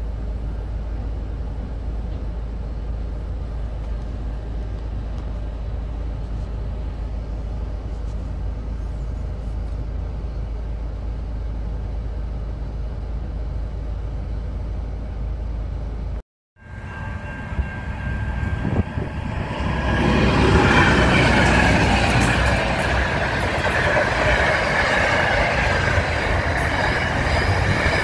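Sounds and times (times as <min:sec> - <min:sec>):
freight train wagons rolling: 0:16.6 - 0:28.0.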